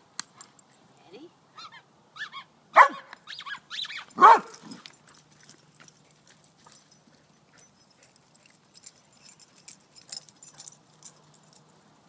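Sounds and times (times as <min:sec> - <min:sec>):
collar tags jingling: 0:00.3 - 0:01.2, 0:03.2 - 0:12.0.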